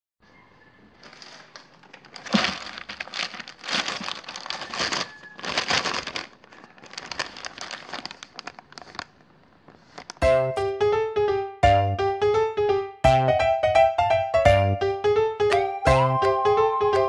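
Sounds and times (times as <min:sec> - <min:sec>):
plastic pouch crinkling: 0:01.0 - 0:10.2.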